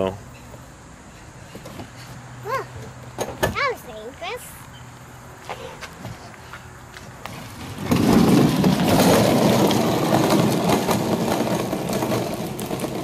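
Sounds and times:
plastic toy wheels rolling: 7.2 - 13.0.

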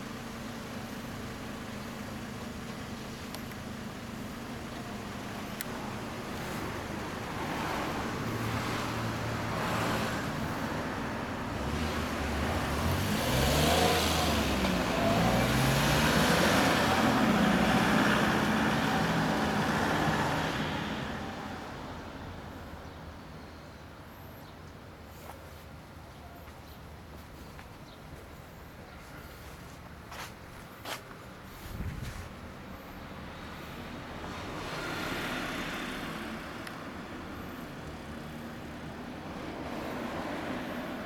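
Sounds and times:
vehicle engine revving: 11.6 - 20.8.

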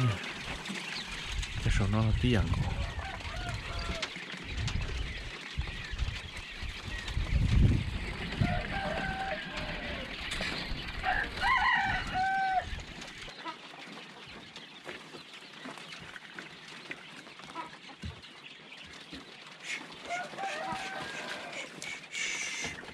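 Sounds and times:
rooster crowing: 2.7 - 4.1, 8.4 - 10.1, 11.0 - 12.8, 20.1 - 21.7.

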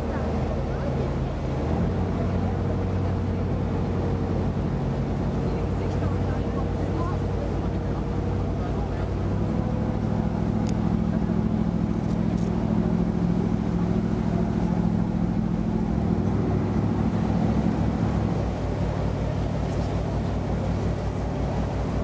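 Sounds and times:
boat engine humming: 0.0 - 22.0.

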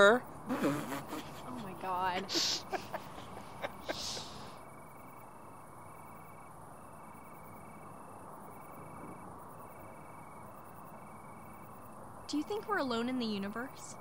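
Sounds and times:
crickets chirping: 0.0 - 14.0
faint background hiss: 0.0 - 14.0.

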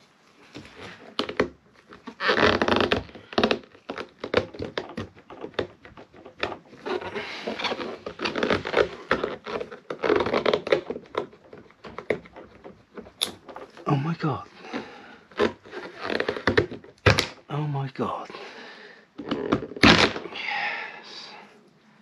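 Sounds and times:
scraping and rustling: 0.0 - 17.5.

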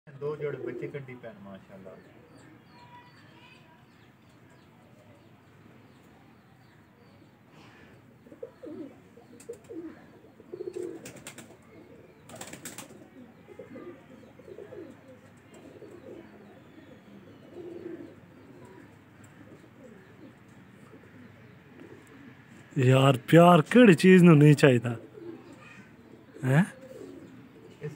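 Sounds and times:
pigeons cooing: 0.1 - 2.7, 6.6 - 22.8, 23.8 - 27.9.

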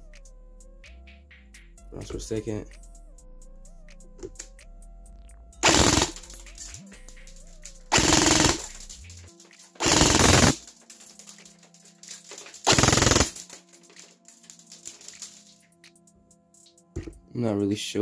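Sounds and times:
electric airsoft gun full-auto bursts: 5.6 - 6.8, 7.9 - 9.0, 9.8 - 10.7, 12.6 - 13.5.

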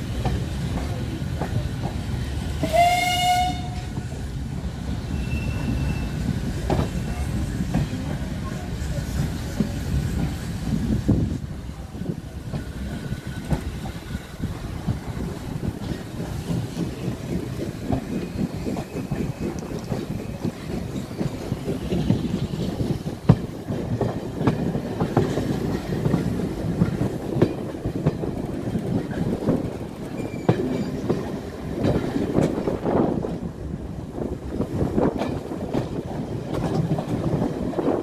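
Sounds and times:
train wheels clattering over rail joints: 12.0 - 38.0.

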